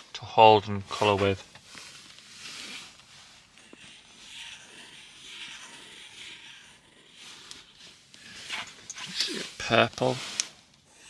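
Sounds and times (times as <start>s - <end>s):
crayon scribbling on paper: 2.3s - 11.0s.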